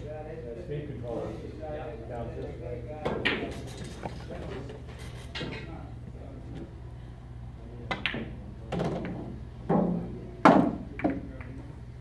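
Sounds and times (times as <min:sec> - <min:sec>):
pool balls clacking: 0:07.9 - 0:11.6.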